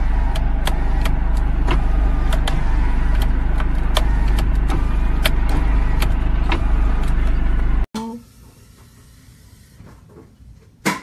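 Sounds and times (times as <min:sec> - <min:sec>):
car engine idling: 0:00.0 - 0:07.9.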